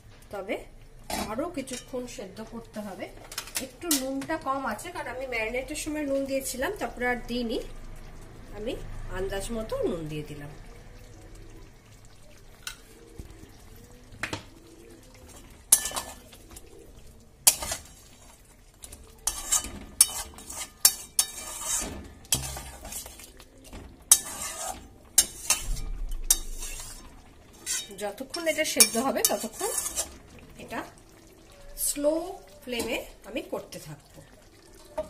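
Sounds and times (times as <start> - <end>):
spatula scraping metal pot: 15.3 - 16.7, 17.4 - 18.4, 19.1 - 30.4.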